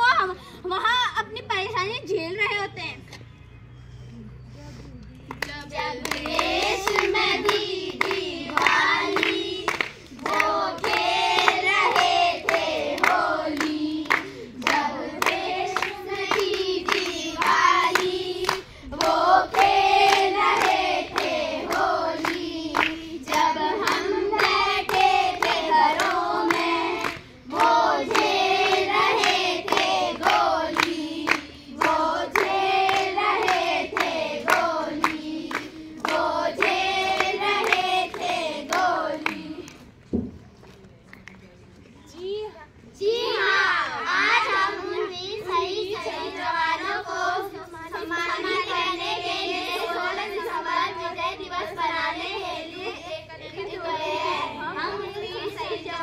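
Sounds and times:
hands clapping in rhythm: 5.2 - 39.9
girls singing in chorus: 5.4 - 39.8, 43.0 - 56.0.

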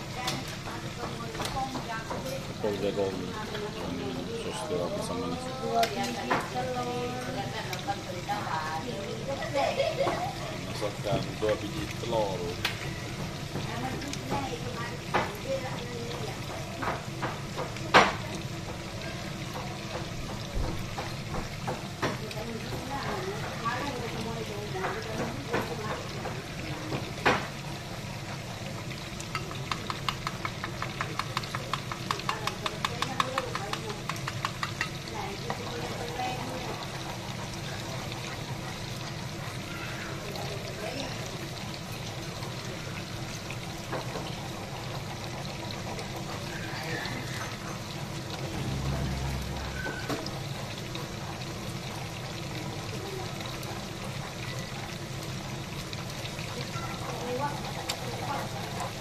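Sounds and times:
sauce sizzling in a wok: 0.0 - 59.0
wooden spatula stirring sauce: 29.0 - 35.6.

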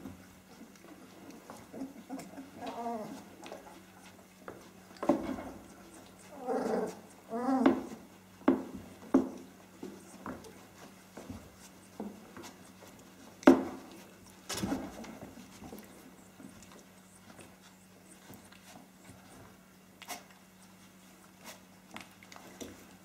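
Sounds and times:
puppies growling: 0.5 - 8.2.

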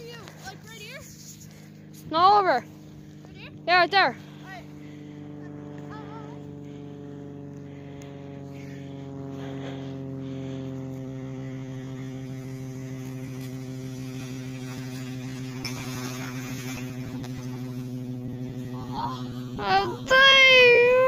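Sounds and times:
steady droning hum: 0.0 - 21.0.

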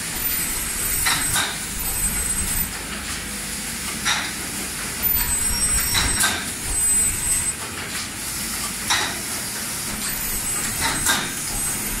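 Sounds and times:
sewing machines running: 0.0 - 2.7, 5.0 - 7.6, 9.8 - 12.0.

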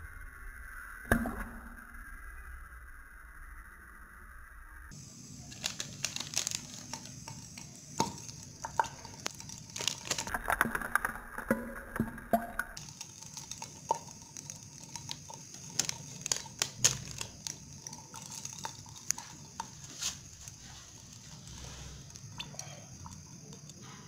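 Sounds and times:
oil sizzling hiss: 1.9 - 11.5, 12.2 - 24.0
hot oil popping: 4.9 - 24.0.

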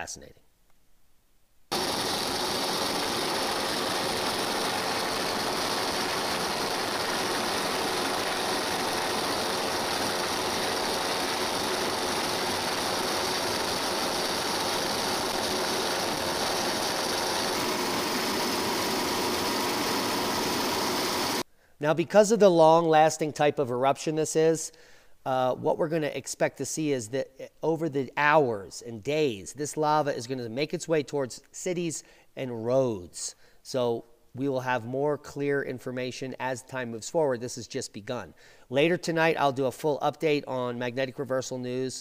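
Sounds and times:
helicopter engine and rotor: 1.7 - 21.4.

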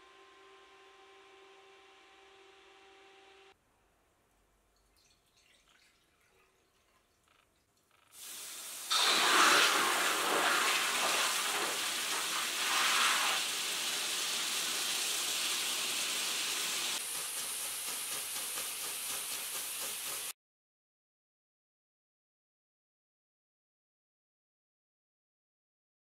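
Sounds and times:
arc welding hiss: 8.2 - 20.3.

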